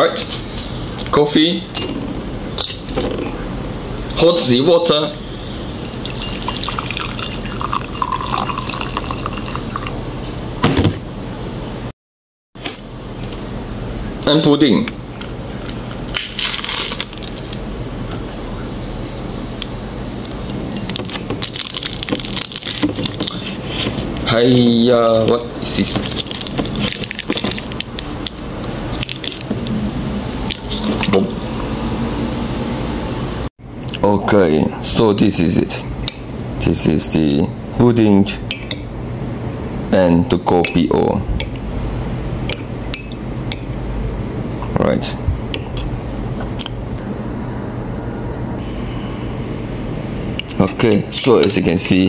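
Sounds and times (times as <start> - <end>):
water poured into a glass: 5.7 - 10.0
plastic cup crinkling: 16.1 - 17.6, 21.0 - 23.6, 25.7 - 28.4.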